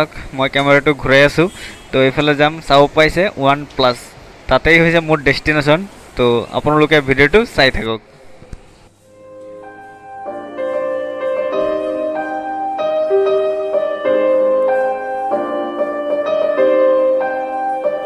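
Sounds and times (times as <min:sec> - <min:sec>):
keyboard sustained chords: 0:09.0 - 0:18.0.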